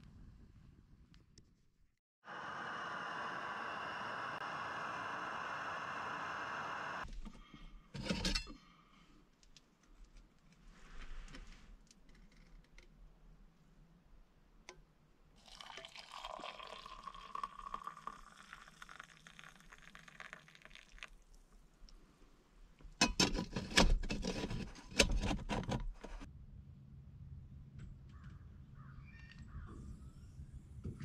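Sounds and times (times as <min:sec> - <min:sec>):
liquid pouring: 0:15.4 - 0:21.4.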